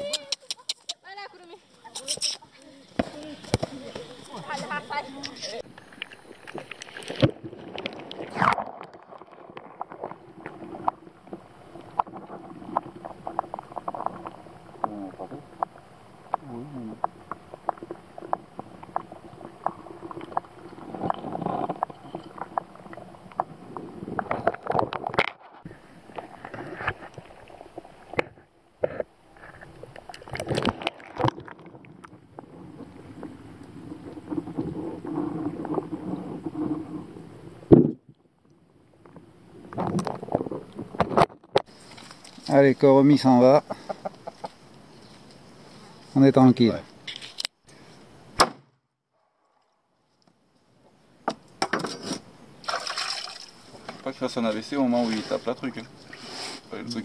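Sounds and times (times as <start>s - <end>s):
faint underwater hum: 0.0s - 25.0s
water rushing: 1.2s - 24.6s, 52.6s - 57.0s.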